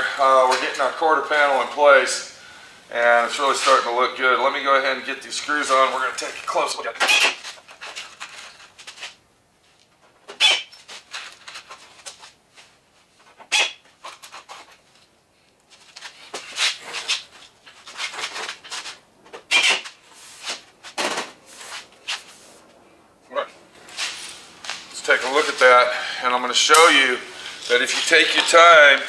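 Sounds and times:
pneumatic drill driving screws into metal: 19.5s - 19.9s.

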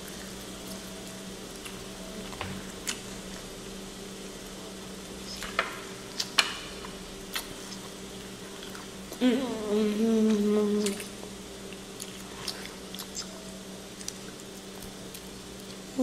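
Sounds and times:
child humming mmm: 9.1s - 11.3s.

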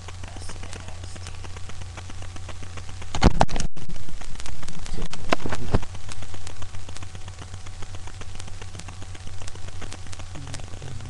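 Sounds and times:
steady low hum: 0.0s - 11.0s
dog low vocal sound: 10.3s - 11.0s.

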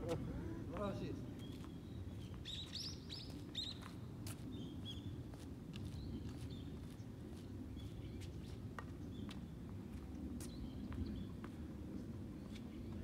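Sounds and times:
small birds chirping: 0.8s - 5.1s.

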